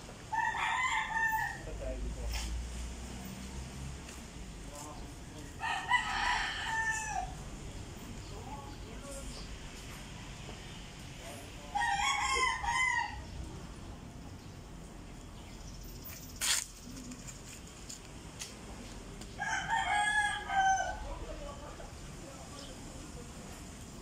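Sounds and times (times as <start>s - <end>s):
rooster crowing: 0.3s - 1.8s, 5.6s - 7.4s, 11.7s - 13.3s, 19.4s - 21.2s.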